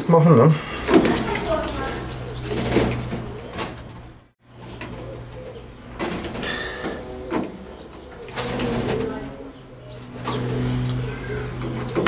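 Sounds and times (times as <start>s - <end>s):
cooing call: 4.8s - 10.1s, 10.8s - 11.9s.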